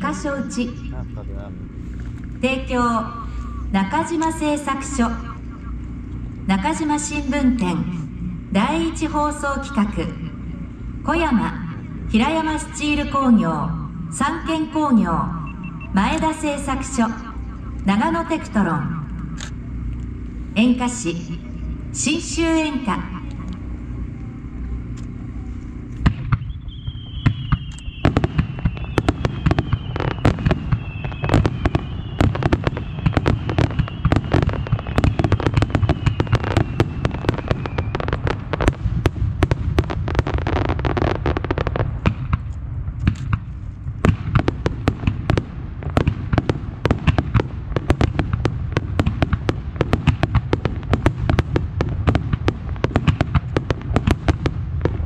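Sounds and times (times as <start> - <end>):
low rumble: 0.0 - 55.0
fireworks launching and bursting: 25.8 - 55.0
falling whistles: 26.4 - 38.2.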